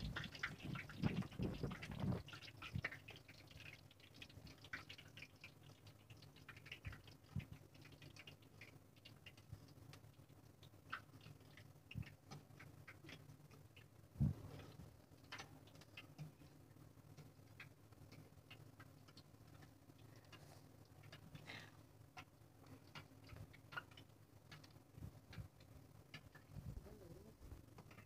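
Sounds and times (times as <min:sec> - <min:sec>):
hot oil crackling and popping: 0:00.0 - 0:28.0.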